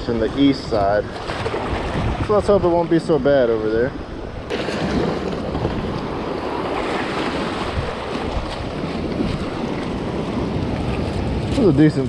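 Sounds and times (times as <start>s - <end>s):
wind on microphone: 0.0s - 12.0s.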